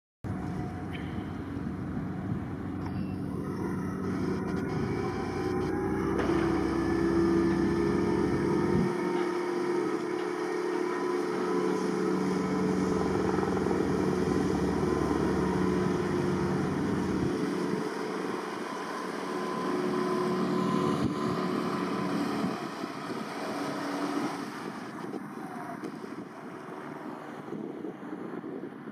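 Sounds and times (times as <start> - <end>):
wind rumbling on microphone: 0.3 - 9.0, 12.8 - 18.4, 20.8 - 28.9
outboard motor running: 0.3 - 28.2.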